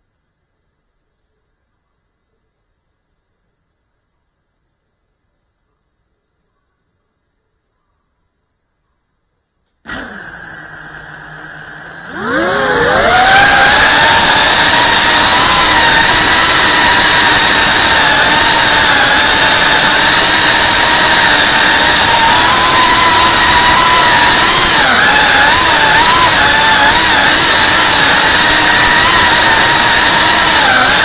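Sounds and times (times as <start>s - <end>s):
high motor whine: 9.9s - 31.0s.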